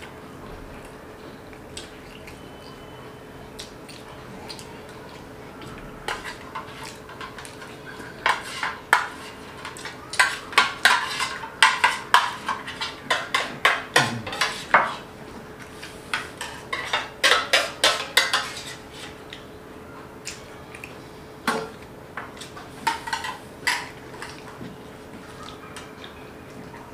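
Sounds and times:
spoons scraping metal plates: 6.1s - 15.1s, 15.8s - 19.2s.

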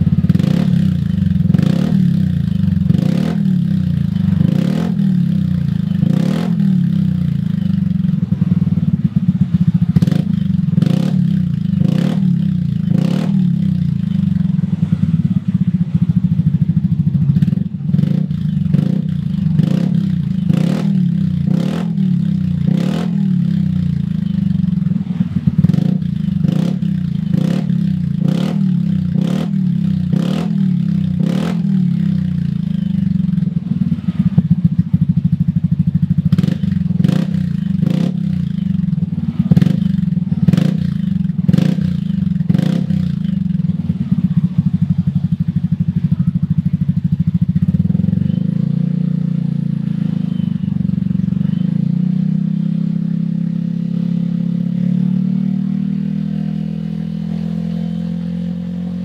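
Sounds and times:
scooter engine exhaust note: 0.0s - 59.0s.

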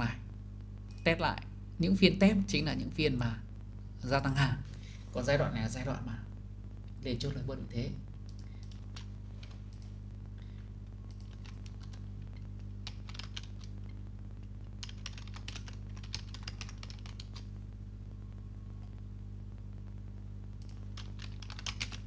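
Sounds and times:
low electrical hum: 0.0s - 22.0s
typing on computer keyboard: 8.3s - 9.9s, 11.1s - 12.0s, 12.8s - 13.7s, 14.8s - 17.5s, 20.6s - 22.0s.

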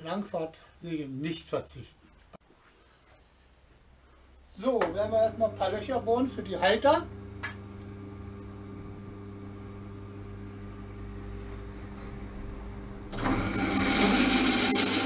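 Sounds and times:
drill press humming: 4.9s - 15.0s
drill bit squealing cutting steel: 13.2s - 15.0s.

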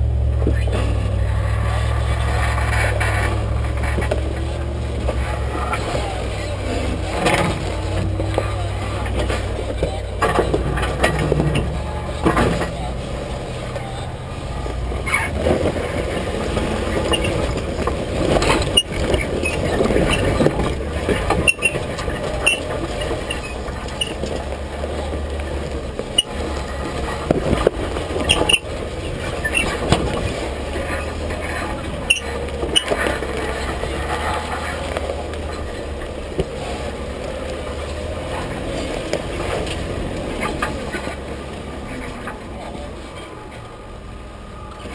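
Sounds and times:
undercarriage rattling: 0.0s - 43.6s
engine low drone: 0.0s - 44.9s
tyres crunching over stones: 0.1s - 43.7s.

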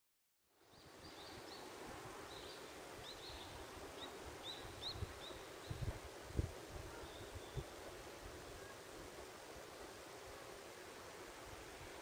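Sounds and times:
outdoor background hiss: 0.4s - 12.0s
small birds chirping: 0.7s - 5.9s, 6.9s - 7.7s.

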